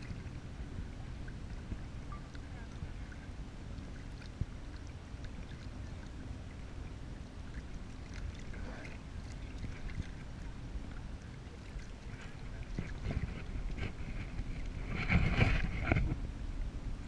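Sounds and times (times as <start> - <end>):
water splashing against kayak hull: 0.0 - 16.2
low rumble: 0.0 - 17.0.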